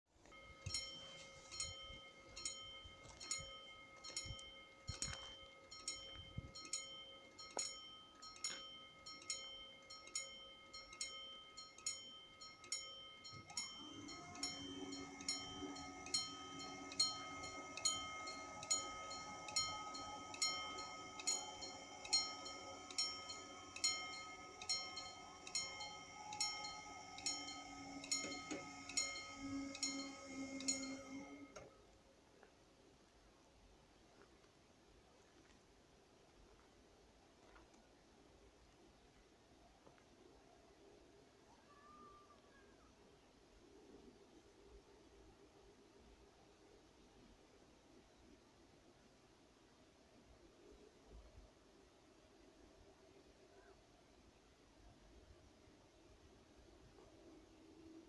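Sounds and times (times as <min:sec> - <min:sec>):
level crossing warning bell: 0:00.2 - 0:31.7
steady low hum: 0:00.2 - 0:31.9.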